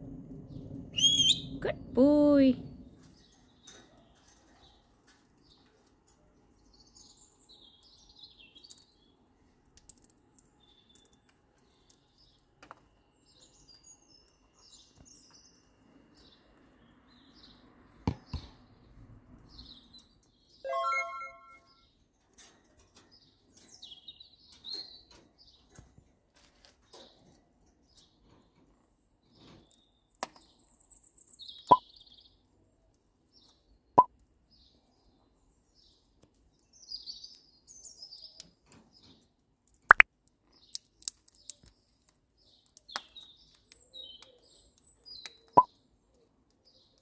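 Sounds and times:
loud parrot call: 0:01.0 - 0:01.5
parrots chirping: 0:01.0 - 0:01.5.

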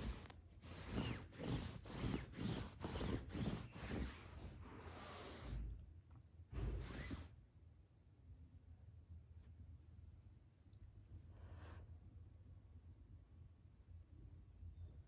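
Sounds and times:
fabric rustling: 0:00.0 - 0:05.6, 0:06.8 - 0:07.3.

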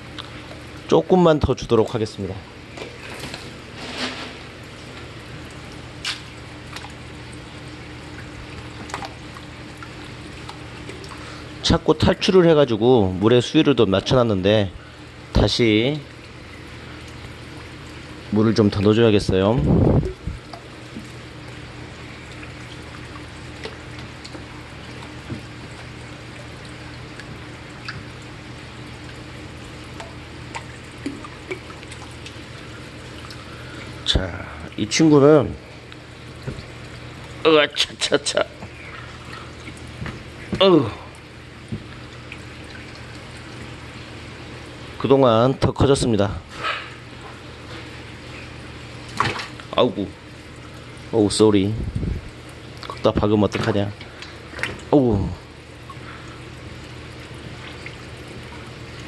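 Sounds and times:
faint hum: 0:00.0 - 0:59.0
water pouring into tank: 0:02.3 - 0:13.2, 0:13.8 - 0:45.0
faint splashes: 0:46.4 - 0:51.1, 0:52.0 - 0:59.0.

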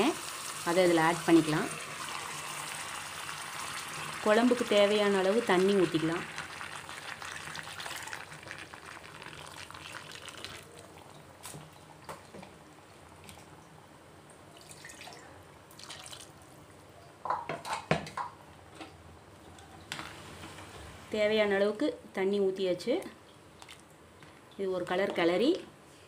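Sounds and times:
water pouring into a pot: 0:00.0 - 0:11.2, 0:14.6 - 0:16.4.

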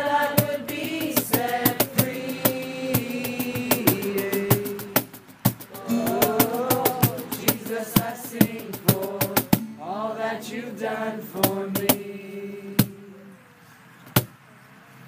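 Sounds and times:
cajon beat: 0:00.0 - 0:09.8, 0:11.3 - 0:12.1
young voices singing: 0:00.0 - 0:13.6
acoustic guitar: 0:00.0 - 0:14.3.

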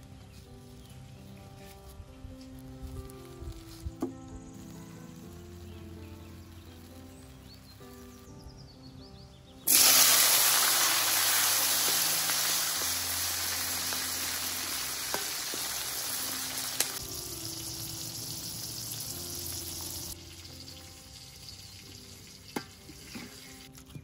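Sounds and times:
food sizzling in hot oil: 0:09.7 - 0:23.7.

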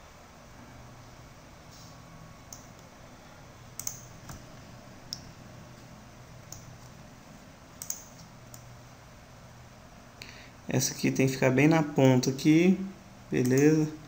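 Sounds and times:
faint low hum: 0:00.0 - 0:14.0
mouse and keyboard clicks: 0:07.8 - 0:08.7.

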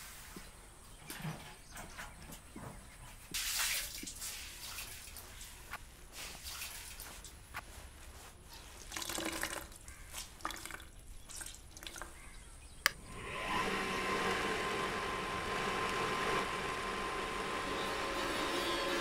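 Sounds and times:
water dripping: 0:03.3 - 0:05.6, 0:08.8 - 0:13.0
wet cloth wrung out: 0:08.5 - 0:12.2
electric motor running: 0:13.0 - 0:19.0.

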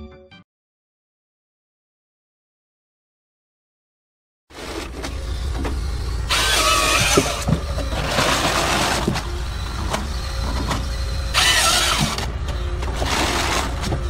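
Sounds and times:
harvester engine running: 0:04.5 - 0:14.0
chainsaw bar cutting log: 0:06.3 - 0:09.3, 0:11.3 - 0:12.3.

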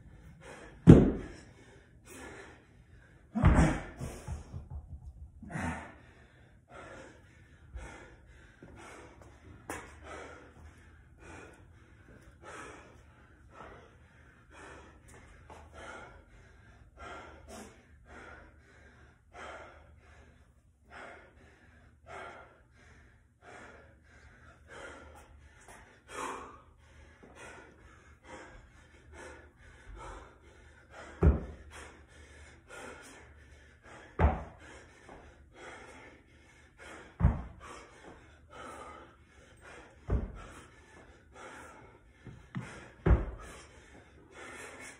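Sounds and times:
man breathing hard: 0:00.0 - 0:44.9
dumbbell thudding on rubber mat: 0:00.8 - 0:01.4, 0:03.4 - 0:05.5, 0:34.2 - 0:34.6, 0:37.2 - 0:37.6, 0:42.6 - 0:43.5.

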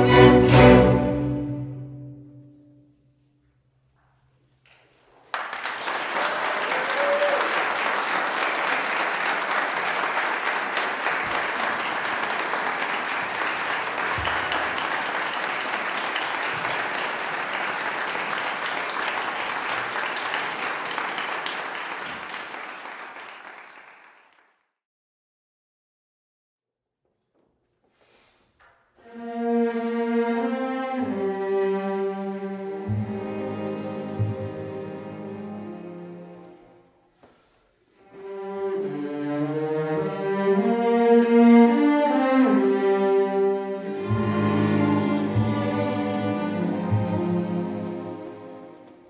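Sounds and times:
audience applauding: 0:05.2 - 0:24.6.

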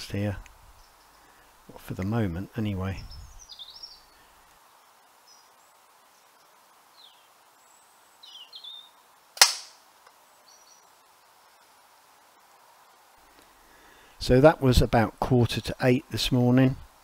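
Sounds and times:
faint bird chirps: 0:00.7 - 0:01.6, 0:03.0 - 0:09.2, 0:10.2 - 0:11.8
air rifle shot: 0:09.4 - 0:09.8.

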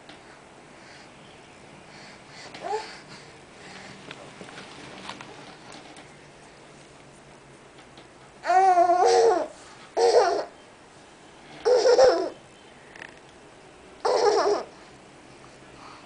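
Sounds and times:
baby laughing: 0:08.5 - 0:10.5, 0:11.6 - 0:12.4, 0:14.0 - 0:14.7.

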